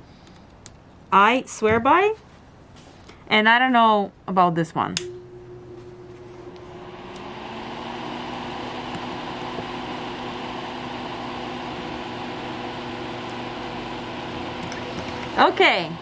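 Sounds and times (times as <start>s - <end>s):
small electric fan motor humming: 5.0s - 16.0s.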